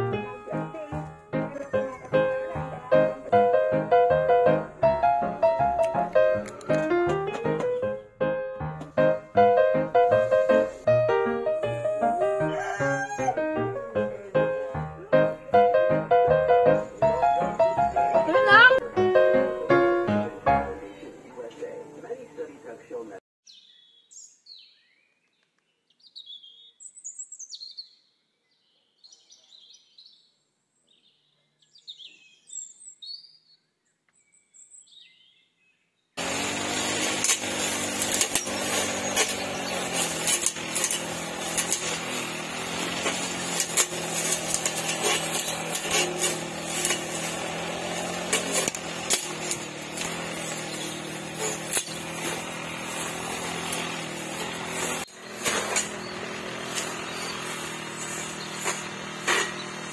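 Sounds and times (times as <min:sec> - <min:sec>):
brush cutter engine running: 0:00.0 - 0:07.7, 0:11.6 - 0:20.8, 0:36.2 - 0:59.9
blade ticking through grass: 0:36.2 - 0:59.9
birds chirping: 0:37.6 - 0:43.6, 0:48.8 - 0:59.9.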